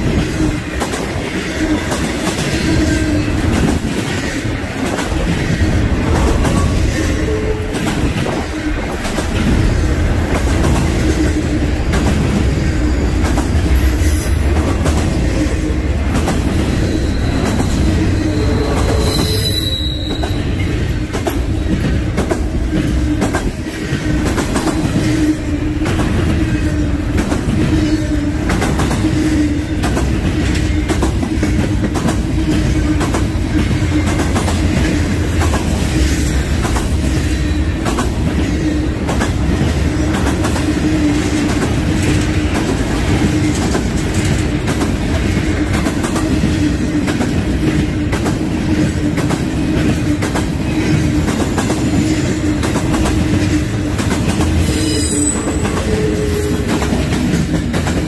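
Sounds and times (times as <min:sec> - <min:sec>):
freight train rumbling past: 0:00.0 - 0:58.0
wheels clicking on rails: 0:00.0 - 0:58.0
wheels squealing on rails: 0:00.0 - 0:58.0.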